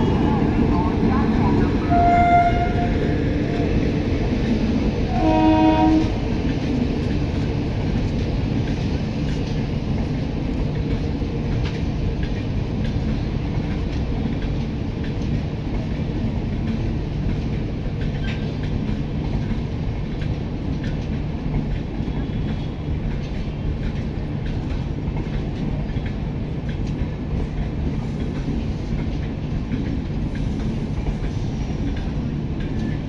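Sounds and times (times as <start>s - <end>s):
train coaches rumbling past: 0.0s - 33.0s
train horn: 1.9s - 3.0s, 5.1s - 6.2s
train wheel clicks: 6.1s - 33.0s.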